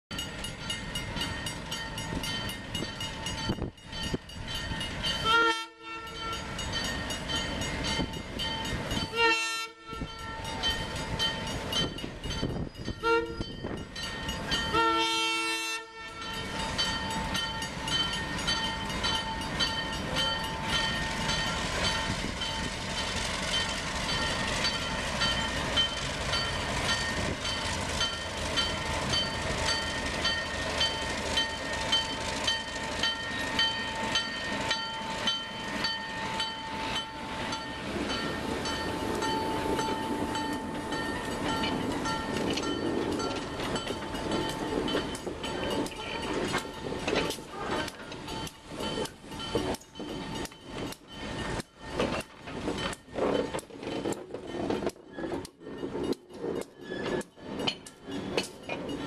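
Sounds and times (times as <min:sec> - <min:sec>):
diesel locomotives running: 0:00.1 - 0:59.0
locomotive air horn: 0:05.2 - 0:06.4, 0:09.1 - 0:10.2, 0:12.9 - 0:13.6, 0:14.7 - 0:16.4.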